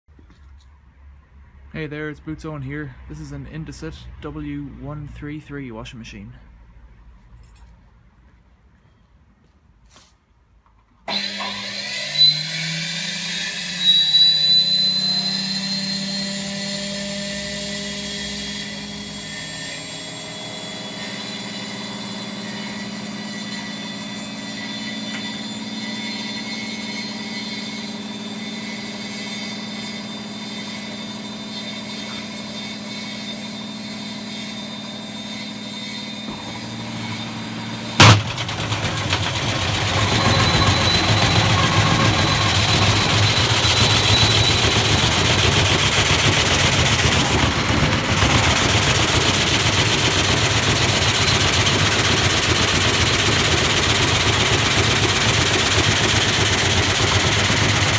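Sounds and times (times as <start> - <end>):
washing machine running: 20.9 - 57.9
loud bang: 36.2 - 43.4.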